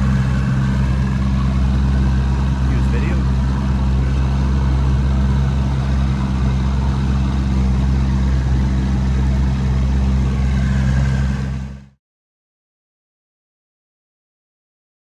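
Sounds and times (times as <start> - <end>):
outboard motor droning: 0.0 - 12.0.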